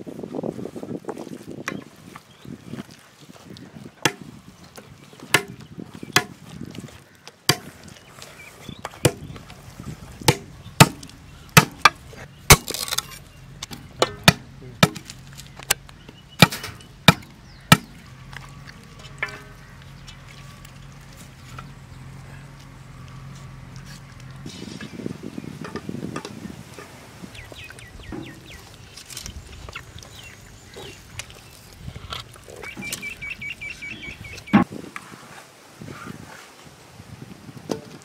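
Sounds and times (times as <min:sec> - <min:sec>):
knife chopping bamboo: 0:04.0 - 0:04.3, 0:05.2 - 0:05.6, 0:06.2 - 0:06.4, 0:07.5 - 0:07.8, 0:09.0 - 0:09.3, 0:10.2 - 0:13.1, 0:13.7 - 0:15.8, 0:16.4 - 0:18.0.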